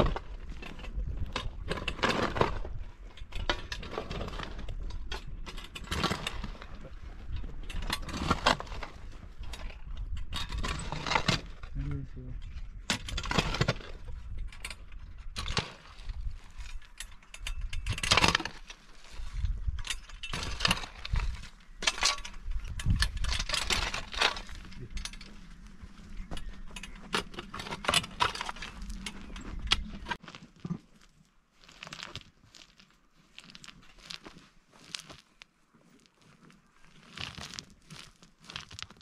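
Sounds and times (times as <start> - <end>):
shovels scraping stony soil: 0.0 - 12.0, 12.7 - 39.0
stones clinking: 19.8 - 39.0
small stones picked up by hand: 28.4 - 39.0.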